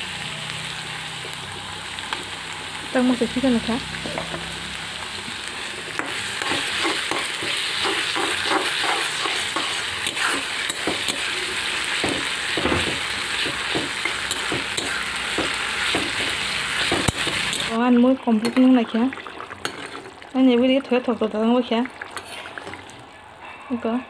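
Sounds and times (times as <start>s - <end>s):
onions sizzling in hot oil: 0.0s - 22.9s
metal spatula scraping pan: 6.0s - 12.0s, 13.0s - 17.7s, 22.2s - 22.8s.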